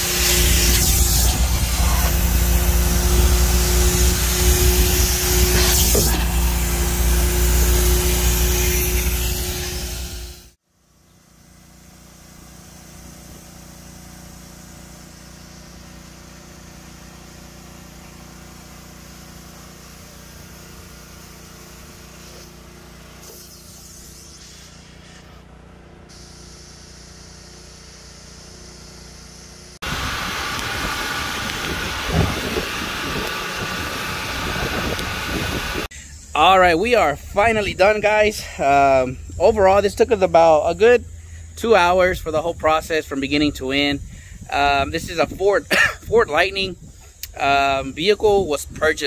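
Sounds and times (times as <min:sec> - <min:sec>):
loud rough rushing noise: 0:00.0 - 0:10.6, 0:29.8 - 0:36.6
vacuum motor humming: 0:00.0 - 0:35.9.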